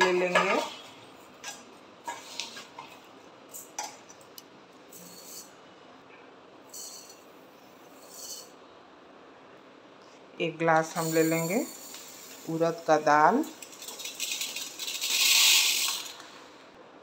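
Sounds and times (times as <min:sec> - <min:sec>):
metal clinks and scrapes: 0:04.9 - 0:05.6, 0:06.7 - 0:07.3, 0:07.9 - 0:08.6, 0:10.9 - 0:12.6, 0:13.4 - 0:16.1
metal tumbler scooping rice: 0:10.9 - 0:16.2
rice grains pouring into a pot: 0:11.0 - 0:16.4.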